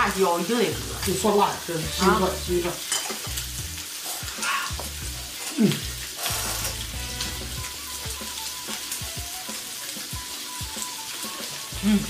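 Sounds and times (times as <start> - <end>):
meat sizzling on a grill pan: 0.0 - 12.0.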